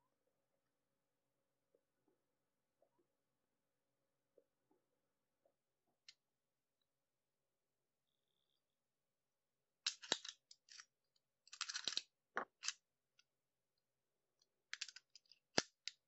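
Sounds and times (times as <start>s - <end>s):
padlock shackle and key rattling: 9.9s - 10.9s, 11.5s - 12.8s, 14.7s - 16.0s.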